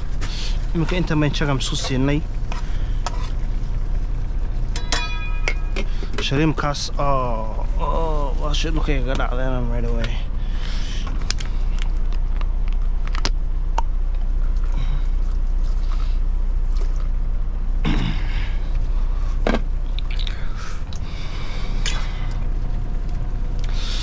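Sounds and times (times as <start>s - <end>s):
truck idling: 0.0s - 24.0s
food and utensils being handled: 4.7s - 6.4s.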